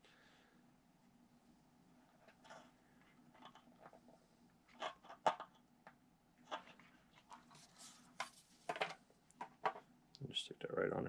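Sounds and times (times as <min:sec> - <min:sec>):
faint rustling: 0:06.4 - 0:09.9.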